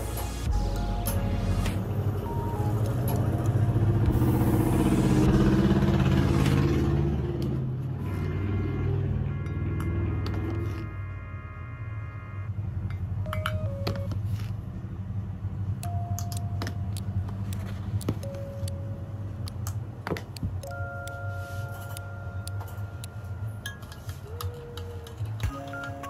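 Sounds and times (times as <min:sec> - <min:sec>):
soft background music: 0:00.0 - 0:06.9, 0:13.3 - 0:14.5, 0:15.8 - 0:26.0
cups and utensils clinking: 0:23.6 - 0:26.0.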